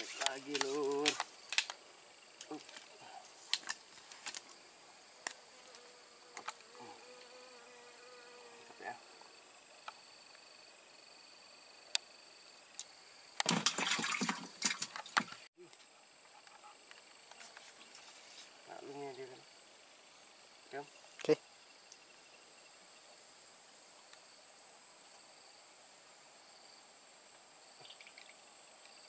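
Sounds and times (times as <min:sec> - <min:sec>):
crackling rustle: 0:00.0 - 0:01.8, 0:02.4 - 0:04.6
insects buzzing: 0:00.0 - 0:29.0.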